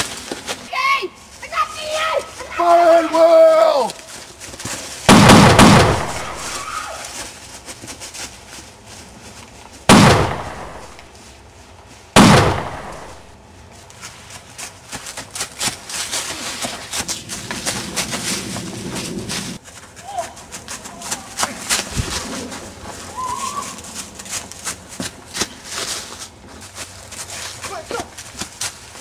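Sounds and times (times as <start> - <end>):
footsteps crunching dry leaves: 0.0 - 29.0
gunshots: 5.1 - 6.6, 9.9 - 11.0, 12.2 - 13.3.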